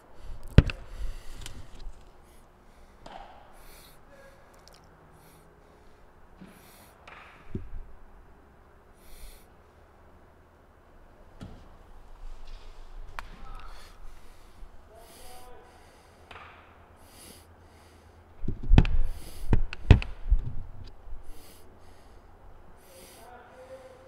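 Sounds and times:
bat hitting baseball: 0.6s - 1.6s, 3.0s - 3.6s, 6.4s - 7.8s, 16.3s - 16.7s.

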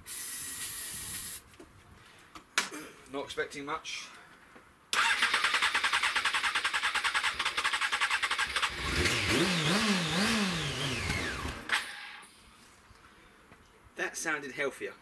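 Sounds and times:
motorcycle engine starter cranking: 5.0s - 9.4s, 10.9s - 12.3s
motorcycle engine revving: 5.0s - 12.2s.

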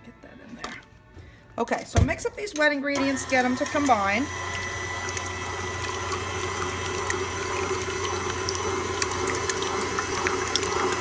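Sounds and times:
beater churning wet batter: 3.0s - 11.0s
stand mixer motor hum: 3.0s - 11.0s.

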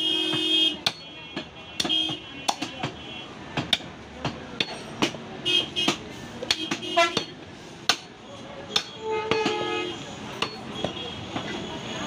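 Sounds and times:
vehicle horn toots: 0.0s - 0.9s, 6.6s - 7.3s, 8.9s - 10.1s
cleavers chopping on wooden blocks: 0.2s - 9.6s, 10.3s - 11.6s.

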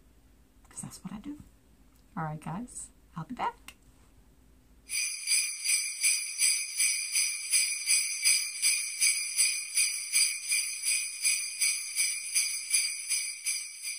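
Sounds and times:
jingle bells shaken rhythmically: 4.9s - 13.9s.

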